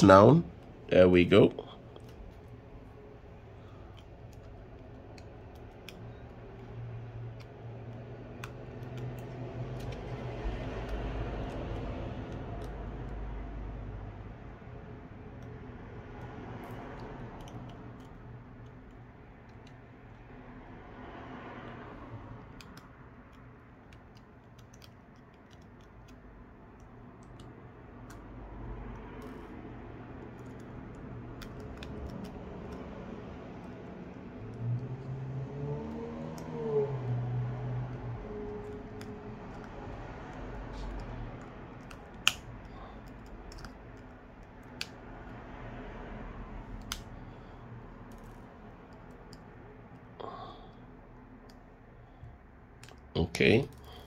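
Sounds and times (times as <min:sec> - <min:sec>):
screwdriver clicks and ticks: 0:03.8 - 0:13.2, 0:15.3 - 0:20.3, 0:22.4 - 0:35.1, 0:38.5 - 0:45.5, 0:46.7 - 0:47.2
sharp clicks: 0:38.6 - 0:45.4, 0:46.7 - 0:47.4.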